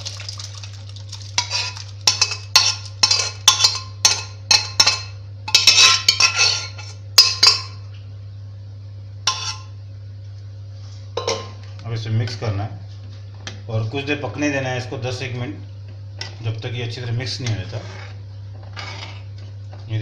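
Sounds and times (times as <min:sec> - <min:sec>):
liquid pouring into a pan: 0:00.0 - 0:03.0.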